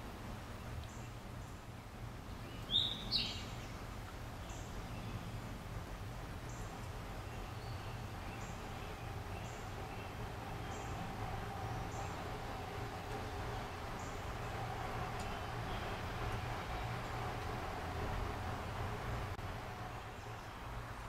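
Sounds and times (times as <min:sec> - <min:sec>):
low outdoor background hum: 0:00.0 - 0:21.0.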